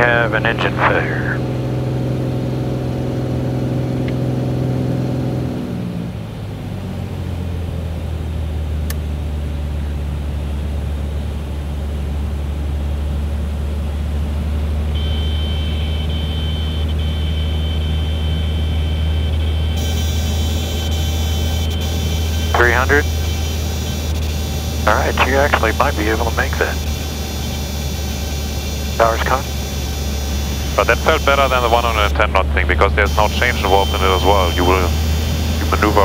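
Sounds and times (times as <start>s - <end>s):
airplane engine drone: 0.0s - 36.0s
high warning tone: 14.9s - 36.0s.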